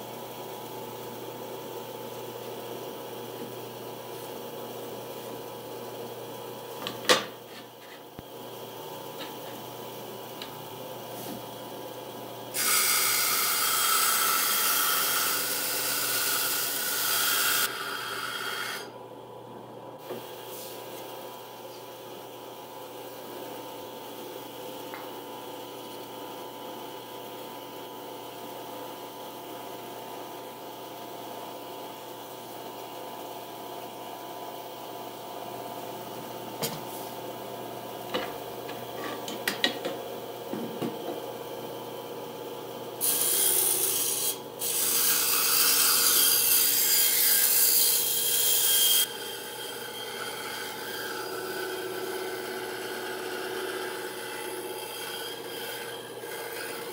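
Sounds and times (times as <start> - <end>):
band saw motor hum: 11.5 - 19.0, 43.0 - 56.9
band saw cutting wood: 12.5 - 18.9, 43.0 - 56.9.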